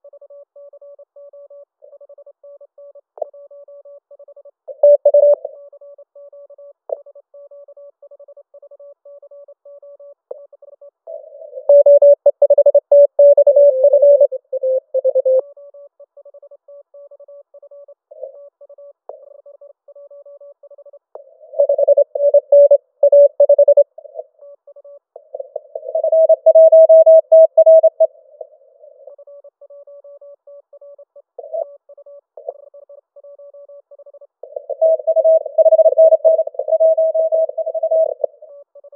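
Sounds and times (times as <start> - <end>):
morse code beeping tone: 11.1 - 15.4, 21.5 - 23.9, 25.4 - 28.1, 34.5 - 38.5.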